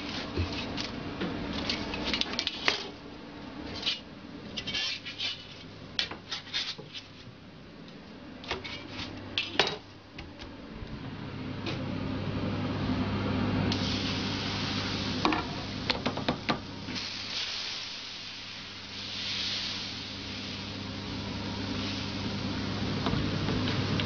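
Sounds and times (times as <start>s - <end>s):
metal spatula scraping griddle: 4.6s - 5.6s
steady low hum: 7.3s - 24.0s.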